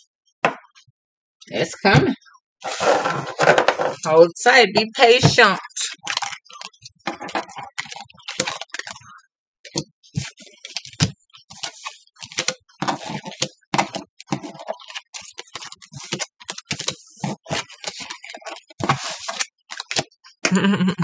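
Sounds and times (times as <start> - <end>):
cards shuffled and dealt on desk: 9.7 - 20.1.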